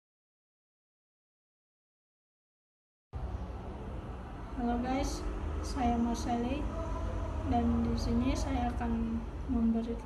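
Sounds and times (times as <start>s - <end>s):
low room rumble: 3.2s - 10.0s.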